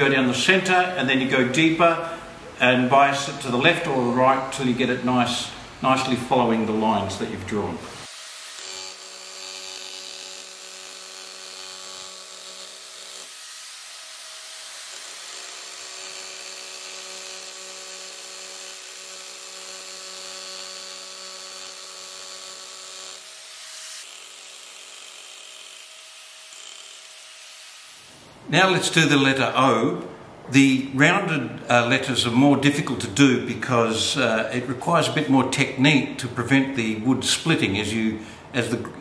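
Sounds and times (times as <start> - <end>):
chisel blade cutting wood: 8.0 - 27.8
power chisel motor hum: 8.0 - 28.2.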